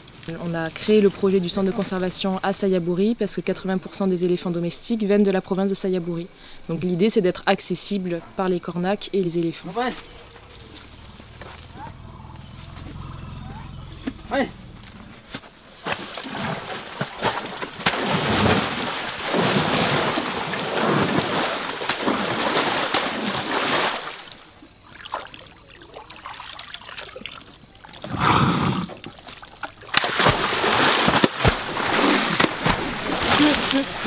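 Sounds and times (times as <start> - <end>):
elephant splashing in water: 10.0 - 34.0.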